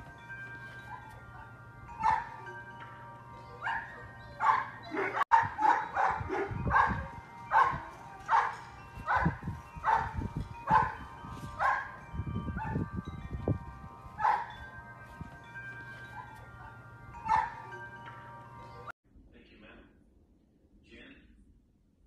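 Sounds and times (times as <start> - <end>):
dog barking: 2.0 - 2.3, 3.6 - 11.0, 11.6 - 11.9, 14.2 - 14.5, 17.3 - 17.6.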